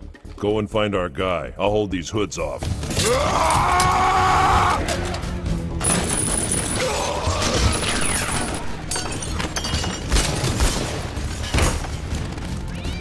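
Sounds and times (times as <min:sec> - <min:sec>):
glass shattering: 0:05.8 - 0:11.8.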